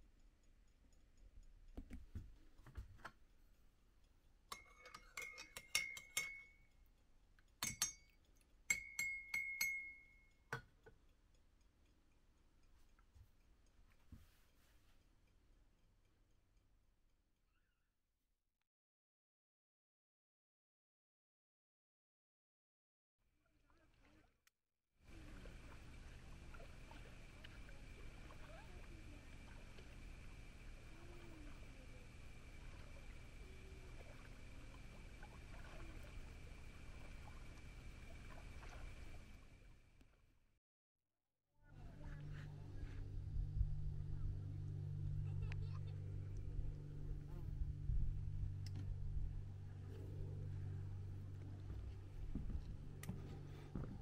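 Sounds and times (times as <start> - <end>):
teaspoon clinking in ceramic mug: 4.5 - 6.7, 7.6 - 10.3
low rumble: 41.8 - 54.0.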